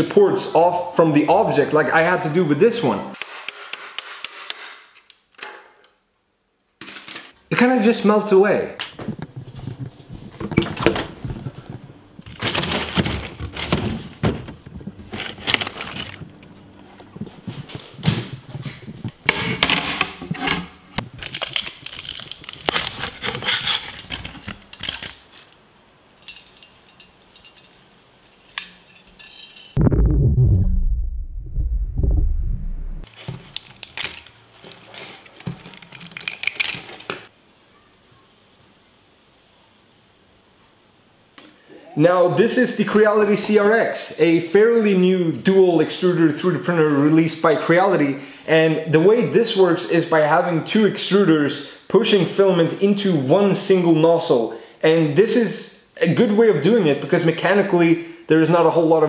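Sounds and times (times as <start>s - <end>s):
soft plastic crackling and rustling: 9.0s - 19.2s, 21.0s - 25.8s, 33.1s - 37.3s
freezer drawer rattling and sliding: 12.3s - 16.2s.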